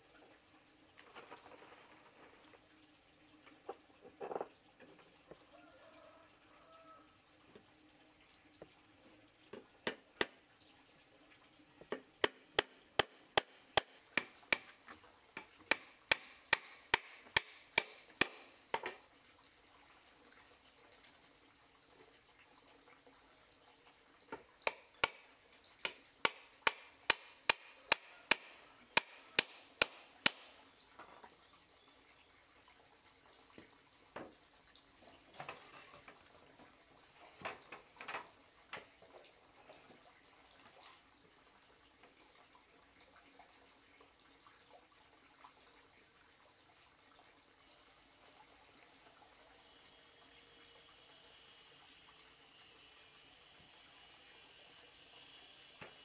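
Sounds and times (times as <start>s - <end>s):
sharp blows on wood: 15.7s - 18.5s, 26.3s - 30.5s.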